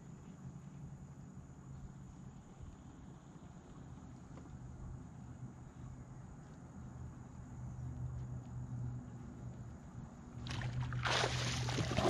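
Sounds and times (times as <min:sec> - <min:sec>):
fish splashing at surface: 0:10.5 - 0:12.0.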